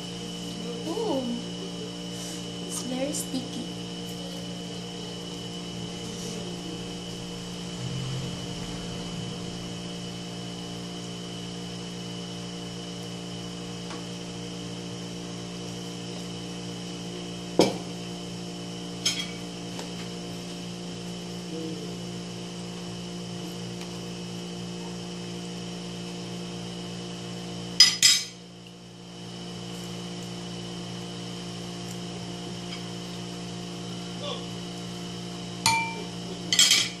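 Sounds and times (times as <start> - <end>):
steady background hum: 0.0 - 37.0
metal spoon clinking on bowl: 35.7 - 37.0.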